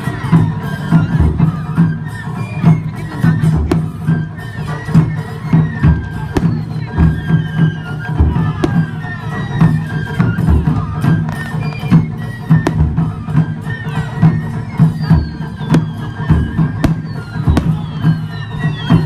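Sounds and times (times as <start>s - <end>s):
crowd noise: 0.0s - 19.0s
taiko drums beating: 0.0s - 19.0s
high whistling tones gliding down: 4.1s - 19.0s.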